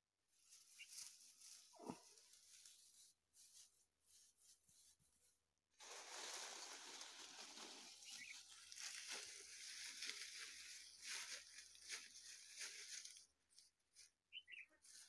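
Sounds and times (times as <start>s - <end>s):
grass and plant stems rustling: 0.3s - 5.0s, 5.8s - 14.1s.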